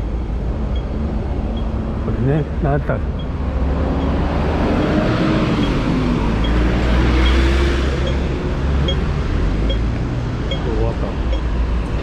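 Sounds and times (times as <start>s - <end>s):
low rumble of traffic: 0.0s - 12.0s
crossing signal beeps: 0.7s - 1.8s, 3.2s - 3.4s, 6.4s - 7.4s, 8.0s - 11.5s.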